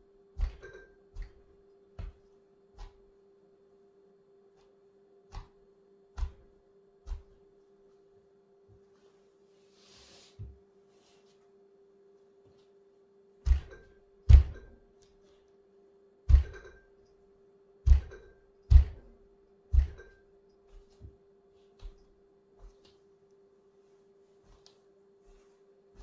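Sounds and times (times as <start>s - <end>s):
faint steady hum: 0.0s - 26.0s
feet stomping on plush toy: 13.4s - 14.7s, 17.9s - 19.1s.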